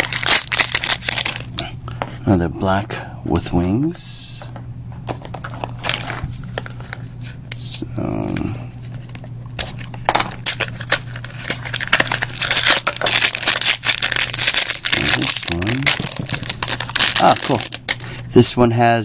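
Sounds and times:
cardboard crinkling and tearing: 0.0s - 1.5s, 10.4s - 17.9s
steady low hum: 0.0s - 19.0s.

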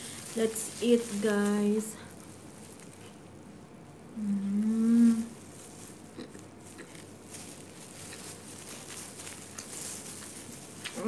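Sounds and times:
woman humming mmm: 4.2s - 5.4s
quiet chewing: 4.2s - 11.0s.

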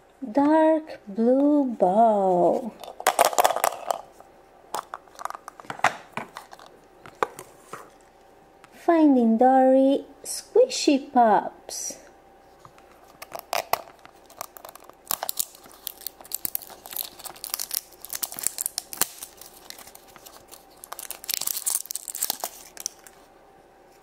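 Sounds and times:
toy wrapper crinkling and tearing: 2.8s - 4.1s, 13.0s - 23.2s.

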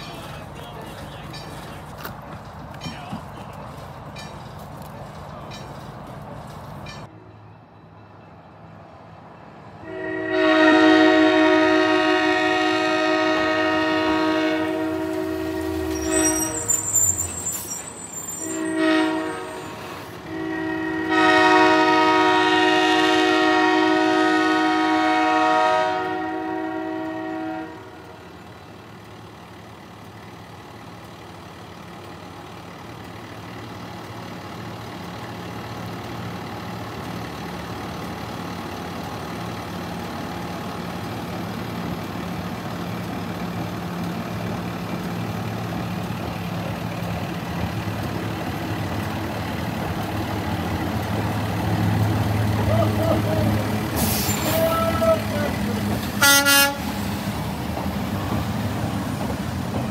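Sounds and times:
diesel engine rumble: 0.0s - 7.1s, 27.5s - 59.9s
locomotive air horn: 9.8s - 28.3s, 52.7s - 55.5s, 56.2s - 57.0s.

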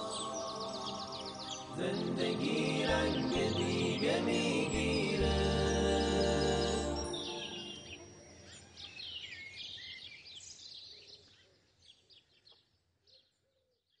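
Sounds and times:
birds chirping: 0.0s - 12.4s.

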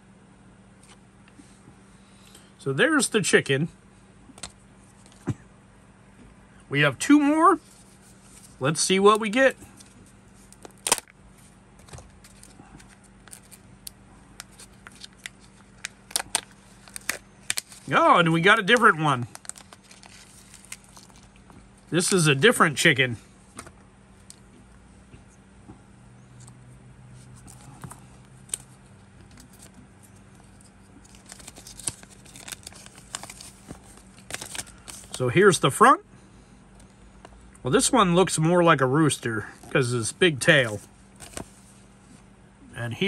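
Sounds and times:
plastic rustling: 11.8s - 13.6s, 14.4s - 22.2s, 27.2s - 35.2s, 40.6s - 41.8s.

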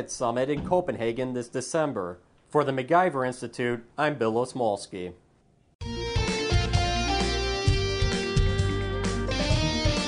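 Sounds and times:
instrumental guitar music: 5.8s - 10.0s.

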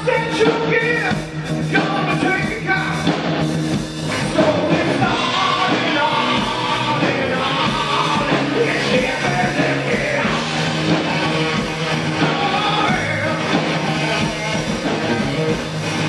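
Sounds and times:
bass guitar: 0.0s - 16.0s
drums: 0.0s - 16.0s
electric guitar: 0.0s - 16.0s
person singing: 4.1s - 15.5s.

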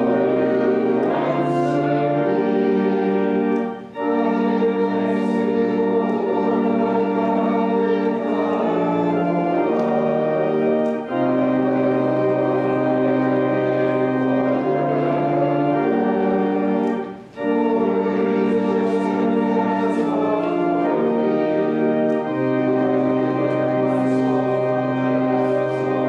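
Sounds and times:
organ playing sustained chords: 0.0s - 26.0s.

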